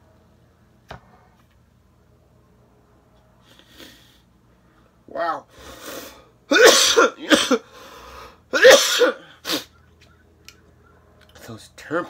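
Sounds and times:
man coughing hard: 6.5s - 7.7s, 8.5s - 9.6s.

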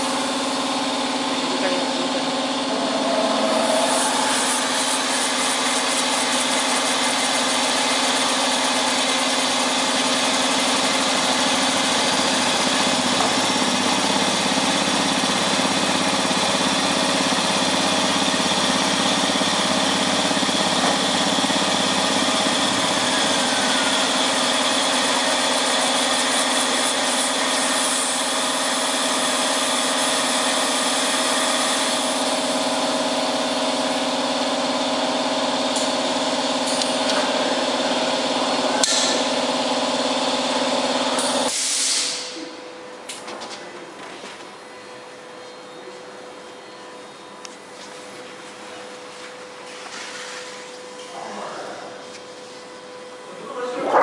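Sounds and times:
platesetter mechanical hum and whine: 0.0s - 54.0s
wavering low tone: 2.0s - 6.6s.

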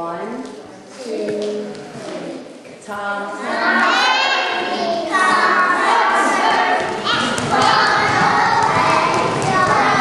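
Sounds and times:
children singing: 3.3s - 10.0s
feet thumping on floor: 6.8s - 10.0s.

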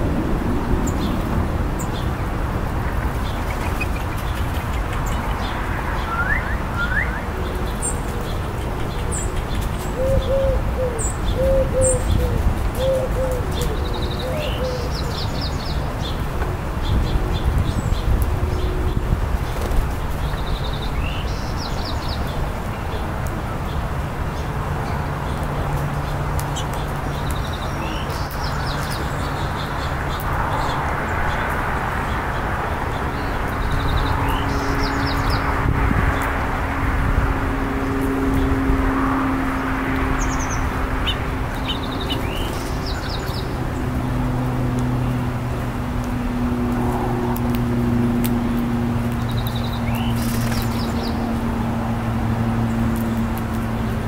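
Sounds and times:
small songbirds chirping: 0.8s - 23.0s, 23.6s - 36.5s, 37.8s - 45.6s, 47.3s - 54.0s
dove cooing: 9.9s - 14.9s.

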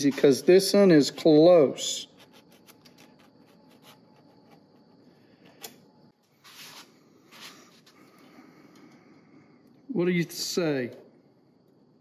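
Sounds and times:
brief scratchy rubs: 6.4s - 7.8s.

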